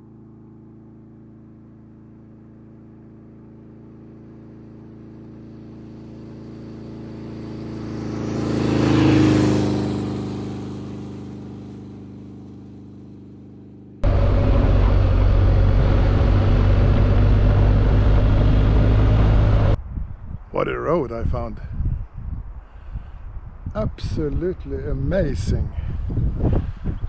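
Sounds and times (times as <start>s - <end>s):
motorcycle riding past: 0.0s - 19.8s.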